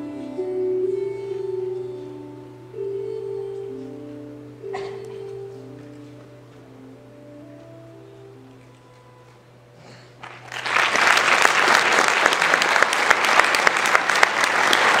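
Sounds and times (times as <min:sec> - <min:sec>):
audience applause: 0:10.2 - 0:15.0.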